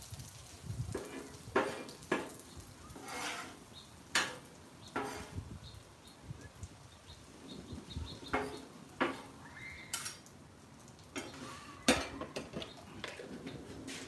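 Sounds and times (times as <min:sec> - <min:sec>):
metal spatula scraping griddle: 0:01.0 - 0:05.4.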